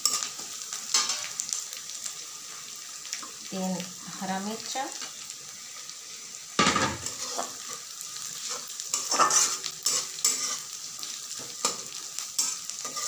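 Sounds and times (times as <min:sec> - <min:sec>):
vegetables sizzling in oil: 0:00.0 - 0:13.0
spatula scraping pan: 0:06.6 - 0:13.0.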